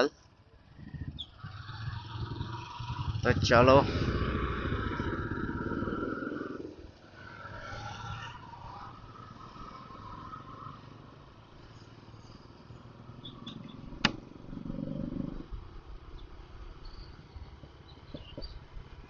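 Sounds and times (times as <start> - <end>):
road noise: 0.0 - 19.0
motorcycle engine rumble: 0.2 - 19.0
sharp click: 14.0 - 14.2.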